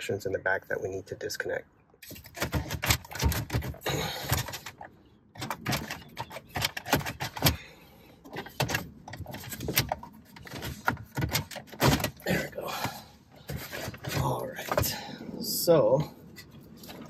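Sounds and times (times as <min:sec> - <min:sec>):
plastic clicks knocks and scrapes: 0:02.0 - 0:07.6, 0:08.2 - 0:12.2.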